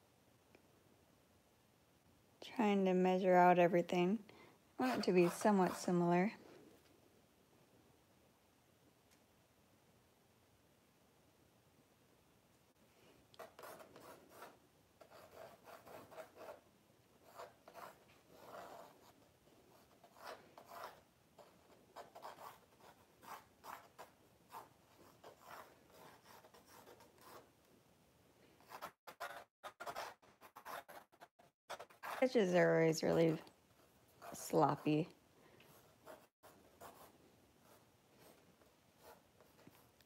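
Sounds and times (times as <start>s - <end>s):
drawing tool scratching canvas: 4.8s - 6.2s, 13.4s - 16.6s, 17.2s - 27.5s, 28.6s - 35.1s.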